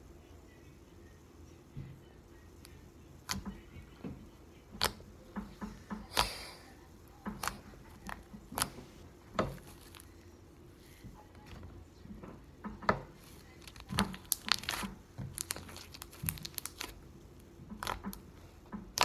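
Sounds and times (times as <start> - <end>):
trapped air popping: 2.6 - 19.0
slime squelching: 4.6 - 11.0, 12.6 - 19.0.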